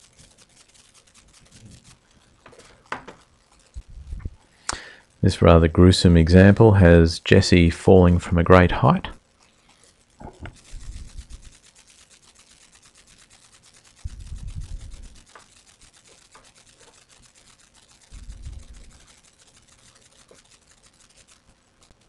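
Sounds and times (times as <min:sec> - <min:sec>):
faint background hiss: 0:00.0 - 0:22.0
rapid crackle: 0:00.0 - 0:22.0
low muffled rumble: 0:03.8 - 0:04.4.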